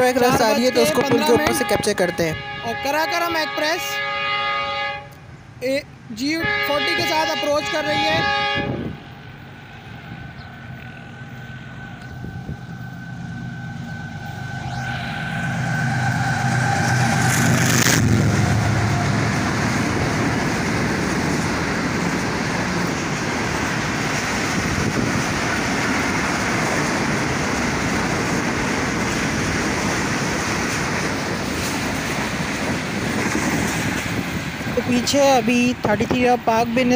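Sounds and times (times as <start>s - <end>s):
train coaches rumbling past: 0.0s - 36.9s
locomotive engine: 5.1s - 36.9s
steady high tone: 9.8s - 20.0s.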